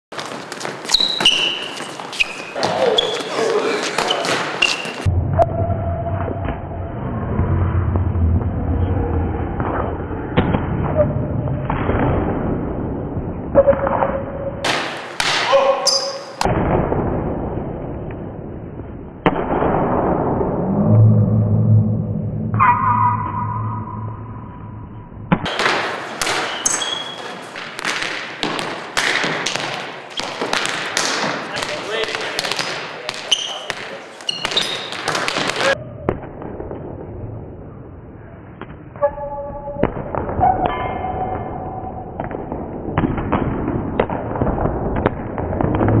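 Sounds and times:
steady tone with overtones: 5.1 - 13.2, 17.0 - 25.4
volleyball slapping wooden floor: 14.6 - 15.8, 25.4 - 35.8.

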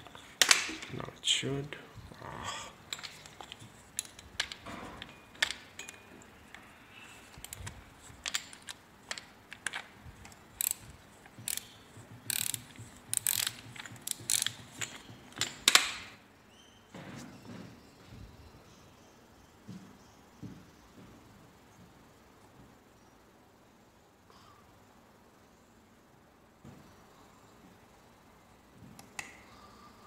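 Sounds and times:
small metallic clicks and scrapes: 2.9 - 16.1.

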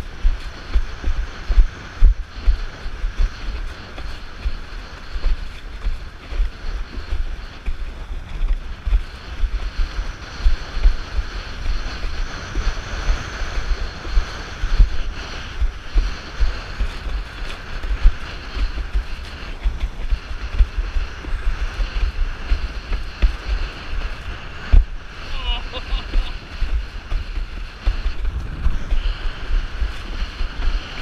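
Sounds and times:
board planing through choppy water: 0.0 - 31.0
wind buffeting microphone: 0.0 - 31.0.

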